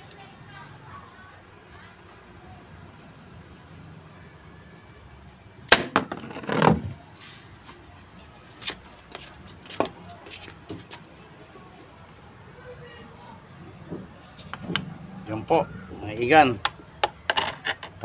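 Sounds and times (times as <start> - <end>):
arrow smacking plastic bottle: 5.7 - 6.8.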